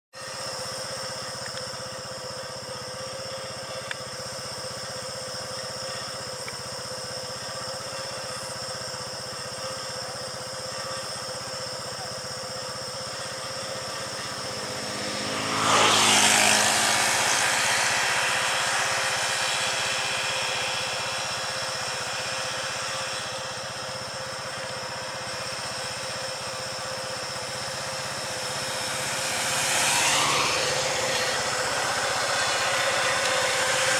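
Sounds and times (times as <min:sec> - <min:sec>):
engine approaching: 0:00.2 - 0:33.9
high-pitched drone: 0:00.2 - 0:33.9
vehicle passing by: 0:13.5 - 0:23.7, 0:26.8 - 0:33.9.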